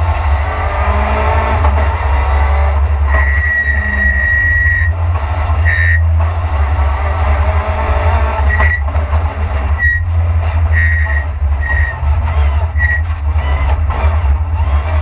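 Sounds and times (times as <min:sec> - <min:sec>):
car engine running hard: 0:00.0 - 0:15.0
road rumble: 0:00.0 - 0:15.0
short high-pitched tones: 0:03.2 - 0:04.9.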